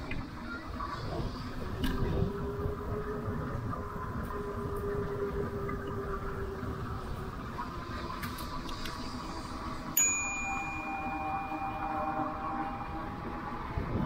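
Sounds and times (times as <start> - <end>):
wind rumble: 0.0 - 10.0, 10.6 - 14.0
faint steady whine: 0.0 - 14.0
steady high tones: 9.9 - 14.0.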